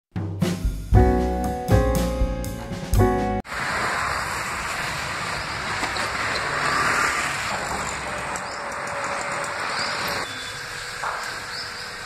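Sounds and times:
road traffic: 0:03.4 - 0:12.0.

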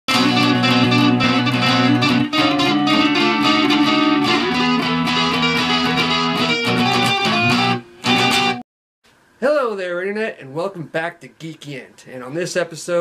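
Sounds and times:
electric guitar fast picked notes: 0:00.1 - 0:08.6.

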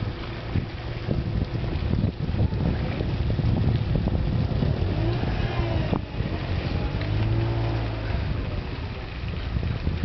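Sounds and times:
wind rumbling on microphone: 0:00.0 - 0:10.0
motor engine running: 0:00.1 - 0:09.8.

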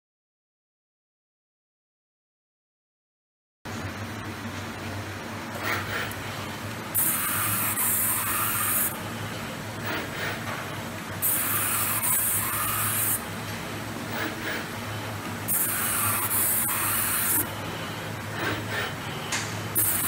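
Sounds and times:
machine low hum: 0:03.7 - 0:20.0
high hiss bursts: 0:07.0 - 0:09.0, 0:11.2 - 0:13.2, 0:15.5 - 0:17.5, 0:19.8 - 0:20.0.

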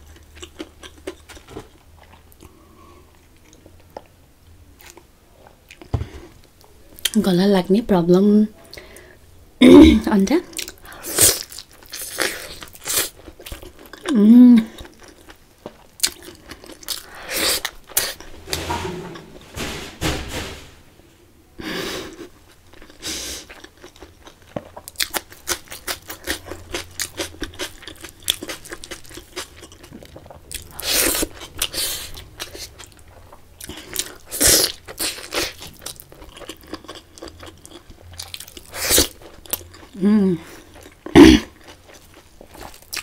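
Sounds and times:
person chewing food: 0:00.0 - 0:04.1, 0:10.5 - 0:18.4, 0:22.1 - 0:43.0.

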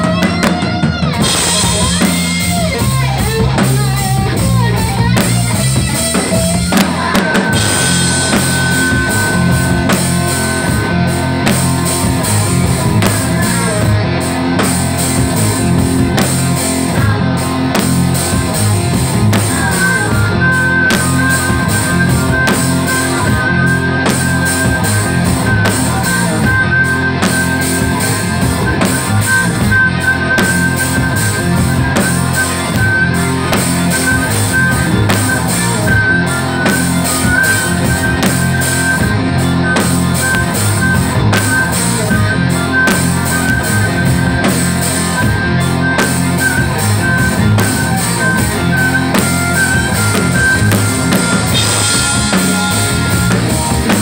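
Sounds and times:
drum kit beating: 0:00.0 - 0:54.0
electric guitar: 0:00.0 - 0:54.0
long held high note: 0:06.7 - 0:13.6.

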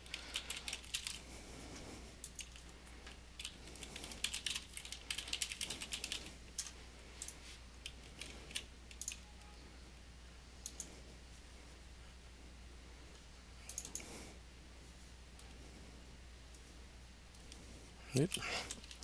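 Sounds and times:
typing on keyboard: 0:00.0 - 0:01.2, 0:02.2 - 0:02.7, 0:03.4 - 0:09.2, 0:18.3 - 0:19.0.

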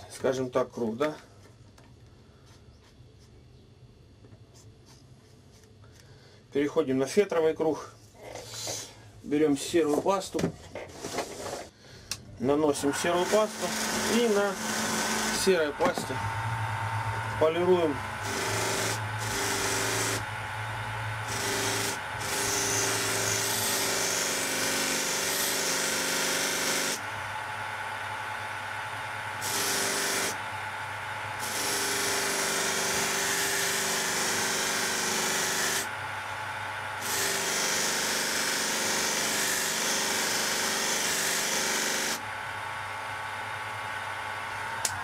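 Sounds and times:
bench grinder running: 0:12.7 - 0:45.0.

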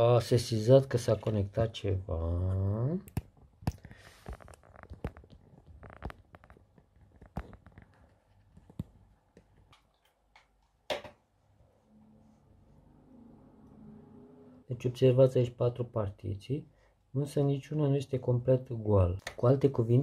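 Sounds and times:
faint clicks and taps: 0:02.5 - 0:11.2.

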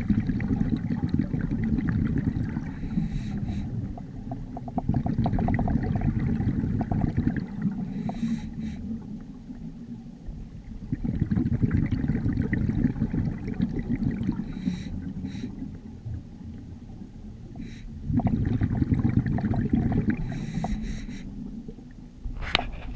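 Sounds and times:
exhaled bubbles rumbling underwater: 0:00.0 - 0:22.9
regulator inhale hiss: 0:02.7 - 0:03.9, 0:07.8 - 0:09.0, 0:14.4 - 0:15.8, 0:17.5 - 0:18.0, 0:20.2 - 0:21.5.

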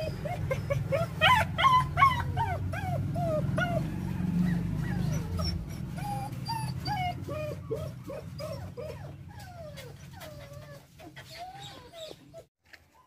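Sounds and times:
dogs whimpering and yipping: 0:00.0 - 0:13.0.

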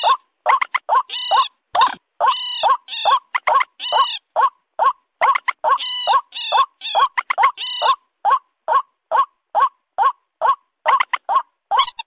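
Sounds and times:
longer higher bird calls: 0:00.0 - 0:01.6
rapid short sharp bird calls: 0:00.0 - 0:12.0.

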